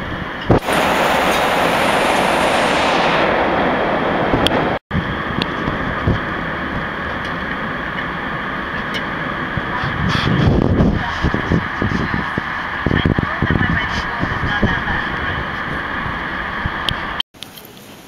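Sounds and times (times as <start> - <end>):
jet airliner cabin roar: 0.5 - 9.6.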